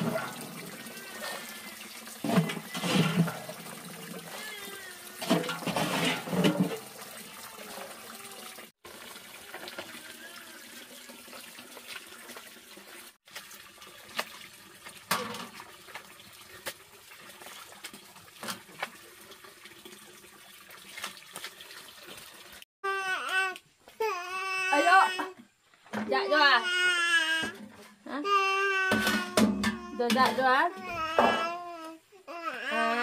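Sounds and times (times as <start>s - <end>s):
water running and splashing: 0.0s - 22.7s.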